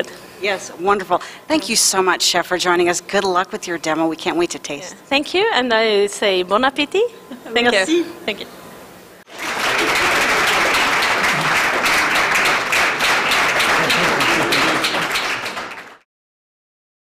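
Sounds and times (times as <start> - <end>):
audience applauding: 9.3 - 16.0.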